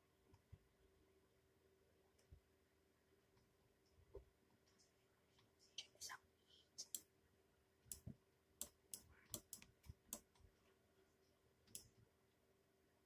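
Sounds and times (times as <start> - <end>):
faint clicks and taps: 7.9 - 12.0.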